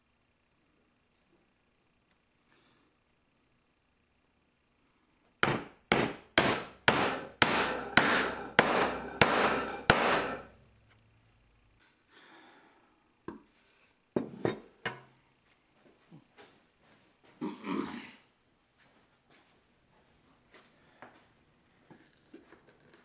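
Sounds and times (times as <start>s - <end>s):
hammer striking wood: 5.4s - 10.5s.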